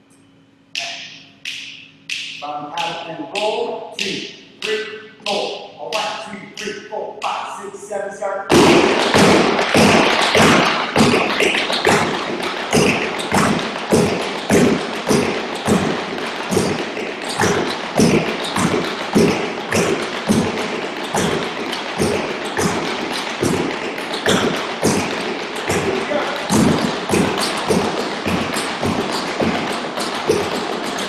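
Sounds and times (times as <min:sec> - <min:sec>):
tap shoes on wooden boards: 0:08.5 - 0:31.0.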